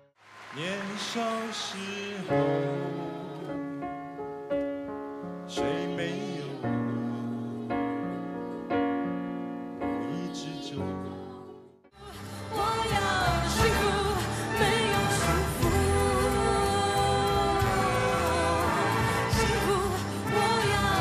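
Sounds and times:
person singing: 0:00.5 - 0:04.0, 0:05.5 - 0:08.7, 0:09.8 - 0:21.0
slow piano chords: 0:02.2 - 0:12.0.

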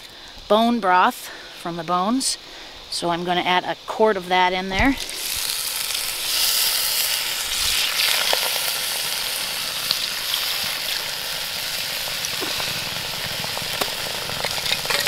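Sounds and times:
sizzling and hissing in hot pot: 0:00.0 - 0:15.0
broth pouring: 0:05.0 - 0:15.0.

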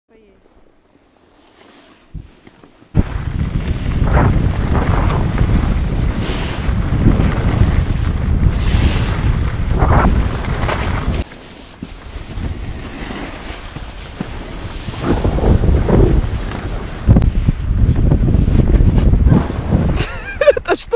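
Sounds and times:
hiss of sliding over snow: 0:00.2 - 0:20.9
wind buffeting microphone: 0:03.0 - 0:11.2, 0:13.7 - 0:20.9.

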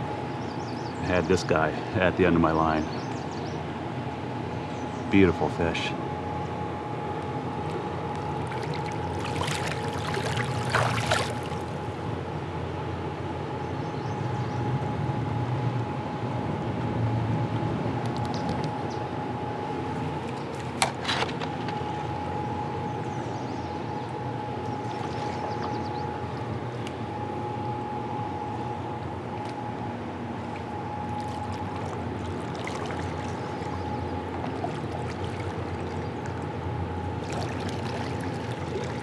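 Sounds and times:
river water washing around kayak: 0:08.1 - 0:11.9, 0:30.3 - 0:39.0
faint steady tone: 0:18.7 - 0:39.0.

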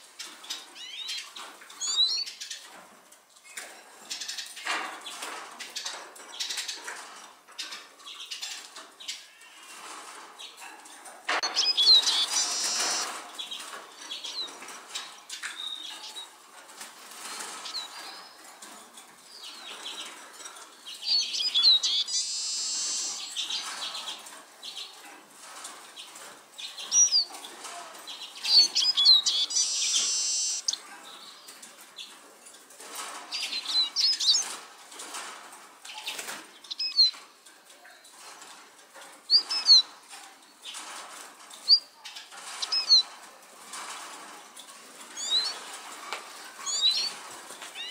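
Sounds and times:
bird twittering: 0:11.4 - 0:13.1, 0:21.0 - 0:23.5, 0:28.4 - 0:30.8, 0:42.6 - 0:43.0, 0:45.2 - 0:45.5, 0:46.6 - 0:47.1.

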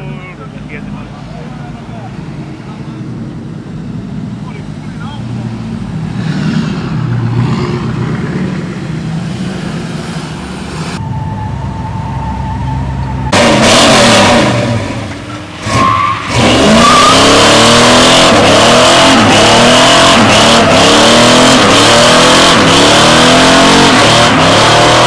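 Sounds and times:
truck engine revving: 0:03.0 - 0:25.0
tyre squealing: 0:15.1 - 0:17.8.

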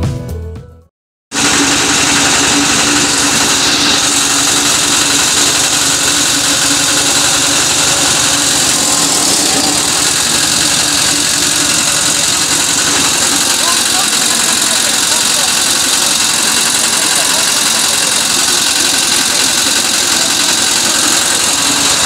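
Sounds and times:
generator and chaff cutter drone: 0:01.3 - 0:22.0.

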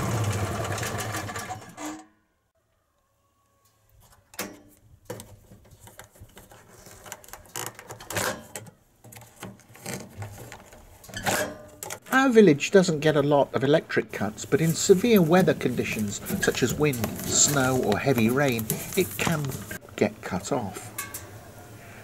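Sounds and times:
generator engine running: 0:00.0 - 0:01.6, 0:14.2 - 0:19.8.

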